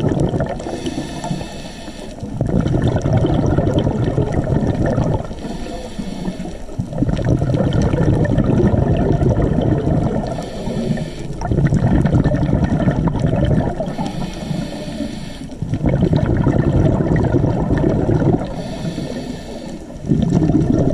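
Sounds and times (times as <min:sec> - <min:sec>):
exhaled bubbles rushing: 0:00.0 - 0:01.0, 0:02.2 - 0:05.6, 0:06.4 - 0:14.7, 0:15.5 - 0:18.8, 0:19.8 - 0:20.9
hissing regulator inhalation: 0:00.6 - 0:02.3, 0:05.3 - 0:06.8, 0:10.1 - 0:11.5, 0:13.7 - 0:15.7, 0:18.4 - 0:20.1.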